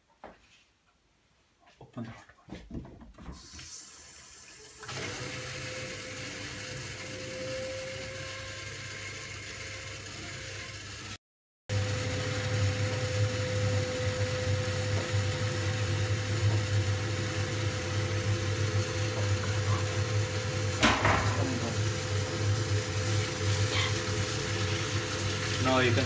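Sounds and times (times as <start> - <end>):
boiler humming with thin whine: 11.7 - 26.0.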